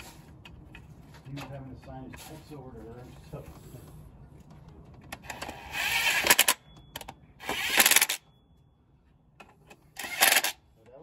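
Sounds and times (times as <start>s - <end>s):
impact wrench rattling: 10.0s - 10.6s.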